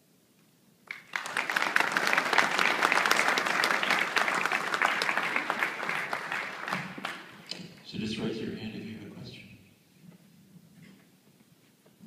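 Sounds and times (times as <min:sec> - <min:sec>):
audience applauding: 0:00.8 - 0:07.6.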